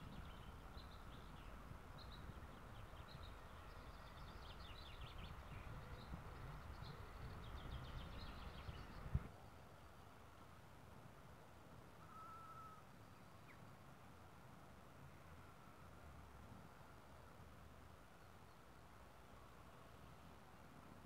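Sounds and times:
small birds chirping: 0:00.0 - 0:09.3
wind rumbling on microphone: 0:00.0 - 0:09.4.

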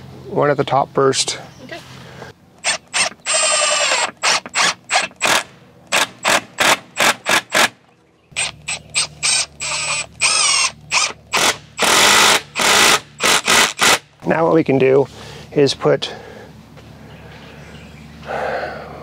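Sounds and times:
cordless drill driving screws: 0:02.6 - 0:07.7, 0:08.4 - 0:14.0.

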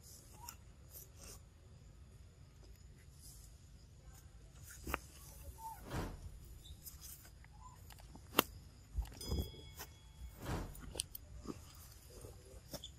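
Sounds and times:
thin high tone: 0:08.5 - 0:11.3.

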